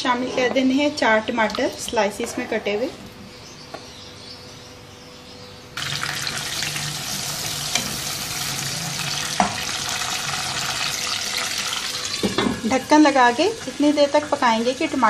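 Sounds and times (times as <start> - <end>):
tomatoes sizzling in oil: 5.8 - 15.0.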